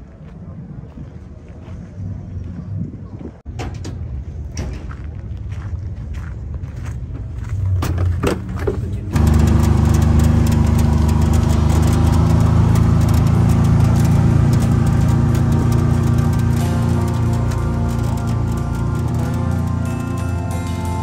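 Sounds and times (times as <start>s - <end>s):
engine running loud: 8.6s - 21.0s.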